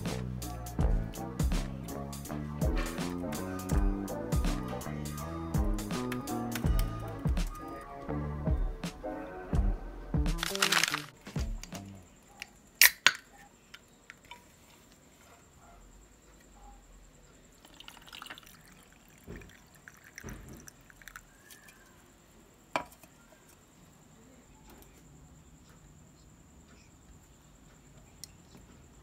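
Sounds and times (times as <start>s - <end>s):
drink can cracking open: 10.4s - 11.2s, 12.8s - 13.2s
juice poured over ice: 17.6s - 21.6s.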